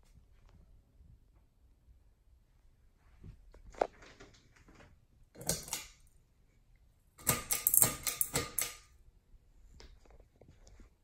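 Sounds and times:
pull chain switch clicking: 7.2 - 8.8.

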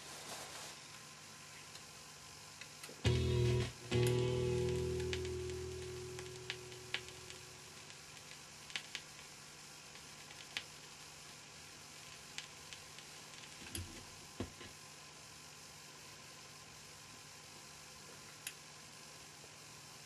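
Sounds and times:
vinyl surface hiss and crackles: 0.0 - 20.0
music notes: 3.0 - 7.9.

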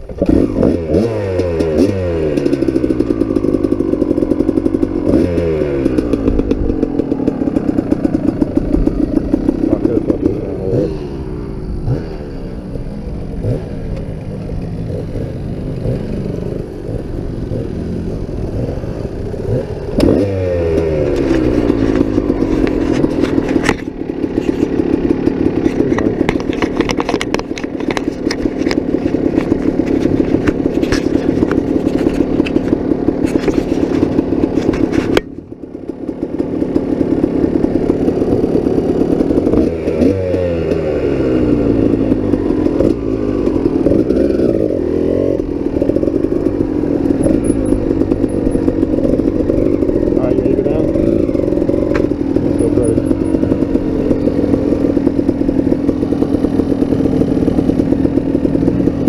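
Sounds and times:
motorcycle engine revving: 0.0 - 59.0
bike knocks and rattles: 1.0 - 10.8, 19.4 - 35.4.

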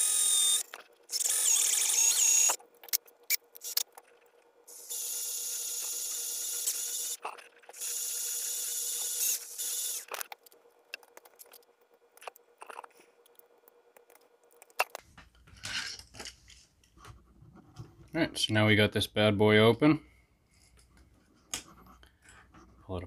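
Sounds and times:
cordless drill drilling metal: 0.0 - 2.6, 4.7 - 7.2, 7.8 - 10.1.

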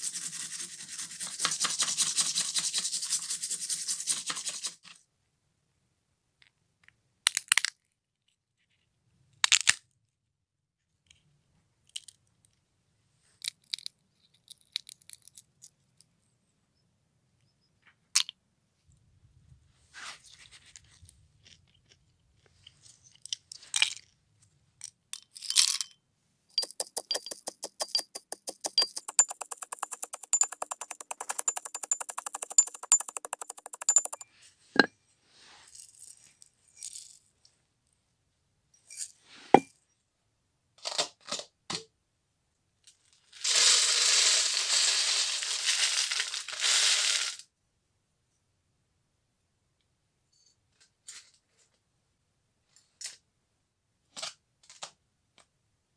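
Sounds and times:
shells crushed in mortar: 7.3 - 7.8, 26.6 - 34.2.

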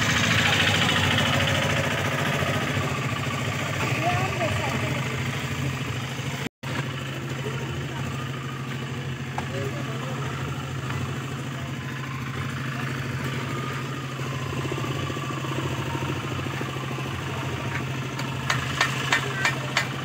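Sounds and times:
low engine-like drone: 0.0 - 20.0.

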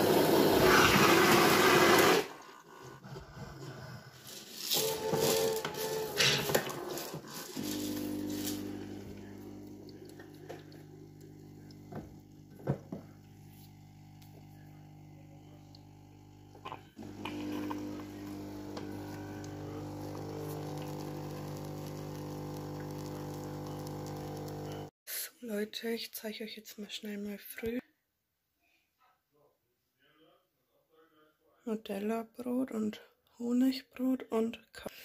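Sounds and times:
coffee machine pump hum: 4.8 - 24.9.

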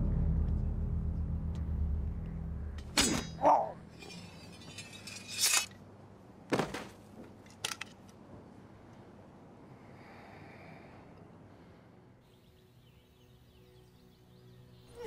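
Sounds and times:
low rumble: 0.0 - 3.0
sharp clinks and knocks: 4.0 - 5.8.

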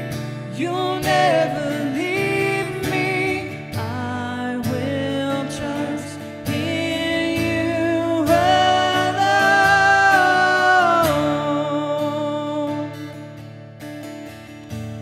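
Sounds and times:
acoustic guitar strumming: 0.0 - 15.0
people singing: 0.5 - 13.0.

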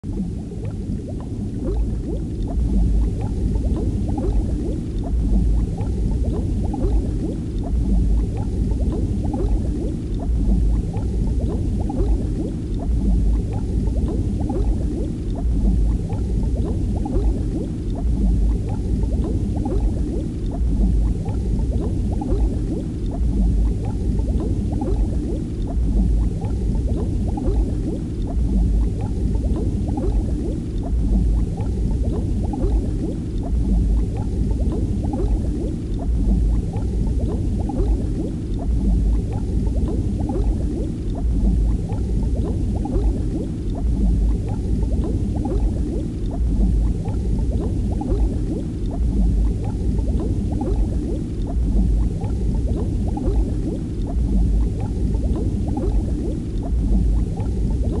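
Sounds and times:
underwater rumble with bubbling: 0.0 - 58.0.

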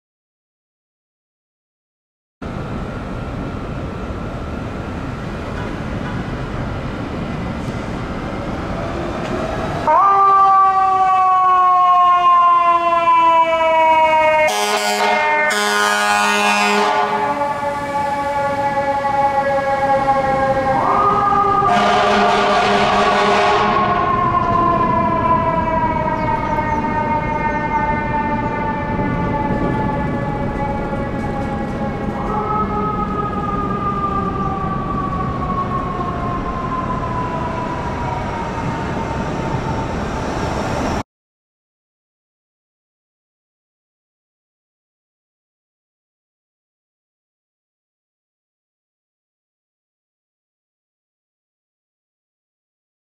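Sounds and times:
fire engine siren: 2.4 - 41.0
low rumble of street noise: 2.4 - 41.0.

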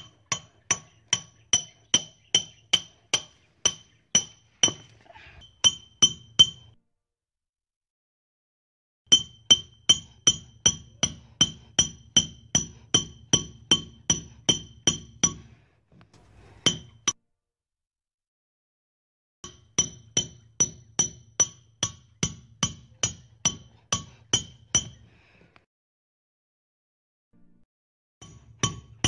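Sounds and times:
hammer driving a nail: 9.1 - 15.5, 19.4 - 25.0, 28.2 - 29.0.

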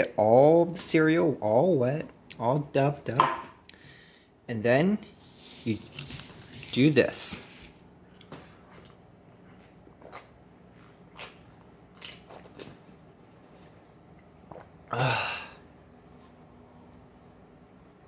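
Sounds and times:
person breathy burst: 14.9 - 15.6.

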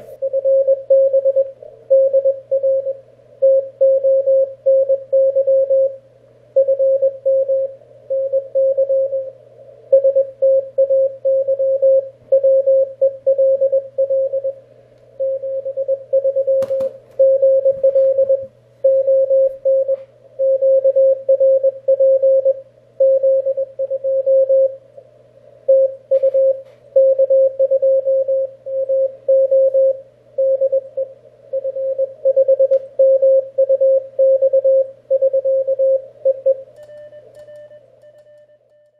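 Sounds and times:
faint steady tone: 0.0 - 38.9
steady low hum: 0.0 - 38.9
morse code tone: 0.2 - 6.0, 6.6 - 9.3, 15.2 - 24.8, 25.7 - 38.9.

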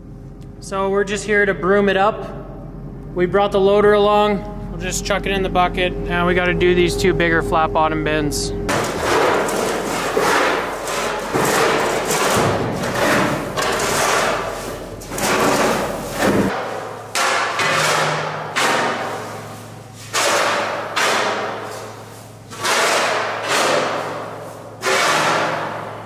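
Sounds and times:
shovels scraping a steel floor: 8.7 - 26.0.

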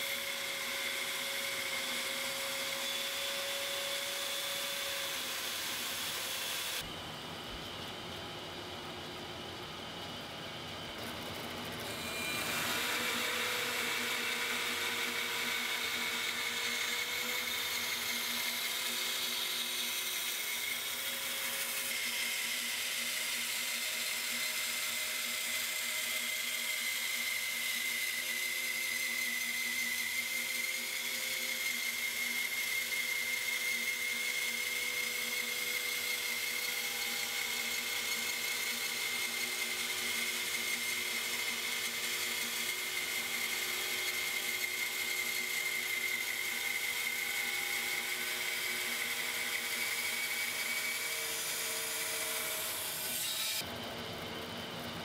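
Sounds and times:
bandsaw whine: 0.0 - 7.2, 10.8 - 55.0.

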